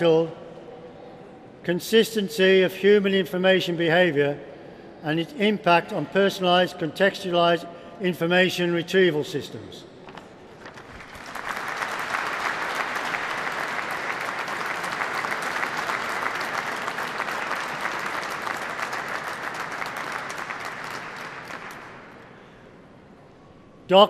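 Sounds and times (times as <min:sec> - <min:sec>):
audience clapping: 0:10.6 - 0:22.3.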